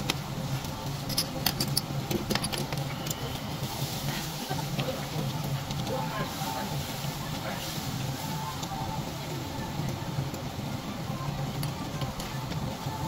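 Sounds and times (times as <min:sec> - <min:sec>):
meat sizzling on a grill: 0:03.1 - 0:10.1.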